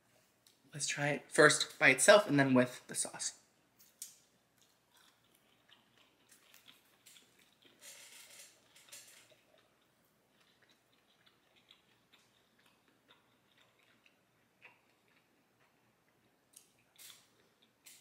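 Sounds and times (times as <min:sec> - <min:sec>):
chewing mouth clicks and smacks: 0:03.8 - 0:18.0.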